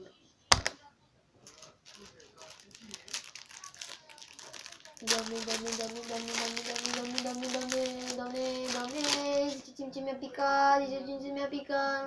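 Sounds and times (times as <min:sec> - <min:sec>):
plastic wrapper crinkling: 0:00.5 - 0:00.8, 0:01.4 - 0:09.6.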